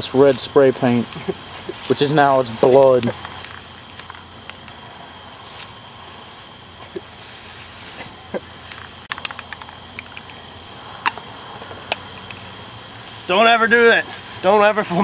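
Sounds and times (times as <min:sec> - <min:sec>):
spray paint can hissing: 0:00.0 - 0:15.0
spray can clicks and knocks: 0:08.0 - 0:10.4.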